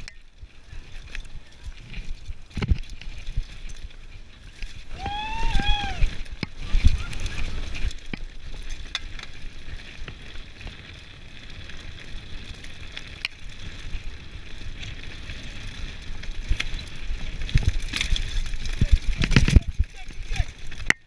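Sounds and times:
bike clicks and rattles: 0:00.0 - 0:21.0
bike tyres rumbling on dirt: 0:00.0 - 0:21.0
wind buffeting microphone: 0:04.8 - 0:20.9.

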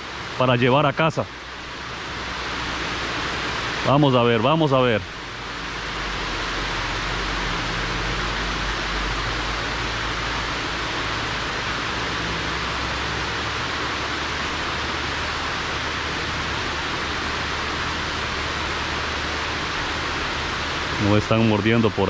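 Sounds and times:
water rushing over dam spillway: 0:00.0 - 0:22.0.

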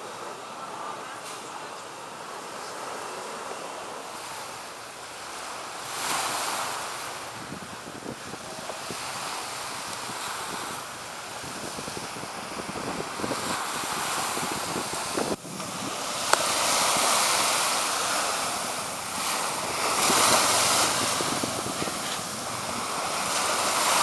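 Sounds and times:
surf washing in: 0:00.0 - 0:24.0
wind buffeting microphone: 0:04.9 - 0:24.0.

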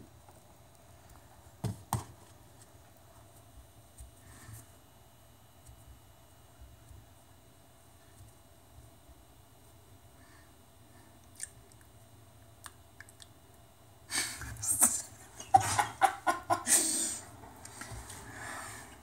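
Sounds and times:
man laughing hard: 0:15.3 - 0:17.3.

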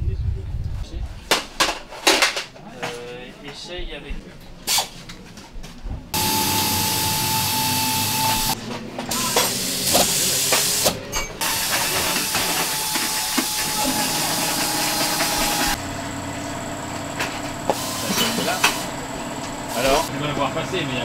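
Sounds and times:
loud steady hissing: 0:06.2 - 0:08.6
thin steady whine: 0:06.2 - 0:08.6, 0:11.5 - 0:21.0.

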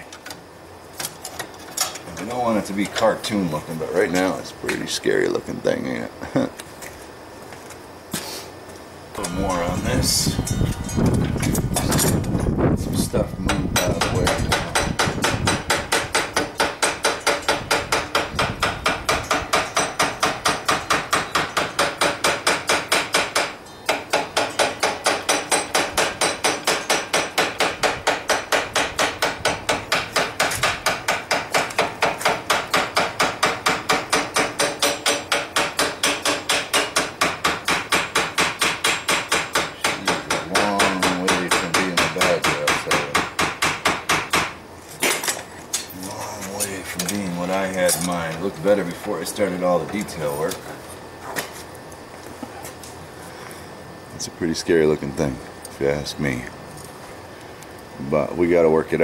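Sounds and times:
hammer striking hot metal: 0:09.2 - 0:11.2, 0:13.5 - 0:45.9.

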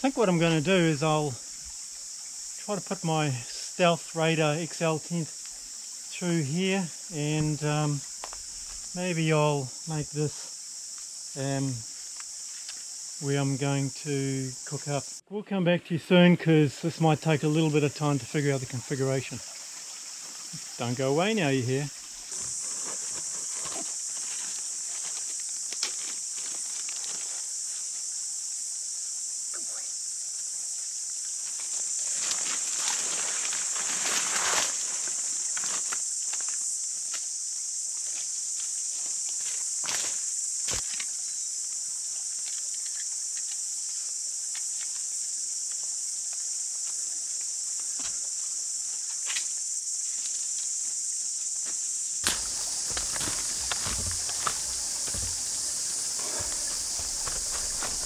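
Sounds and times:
high-pitched insect chorus: 0:00.0 - 0:58.0
clicks and rustles in leaf litter: 0:32.1 - 0:36.5
rustling of gear from backpack: 0:52.2 - 0:58.0
spade digging: 0:52.2 - 0:58.0.

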